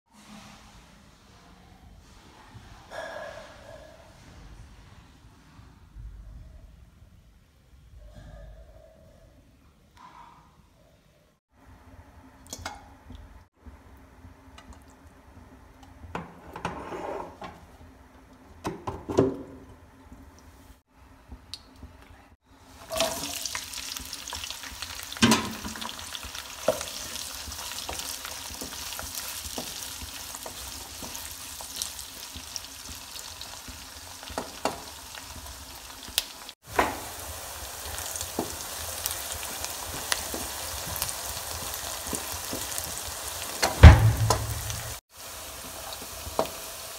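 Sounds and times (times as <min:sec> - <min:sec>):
wooden spatula scraping pan: 0:16.3 - 0:17.6
onions sizzling in wok: 0:22.6 - 0:46.9.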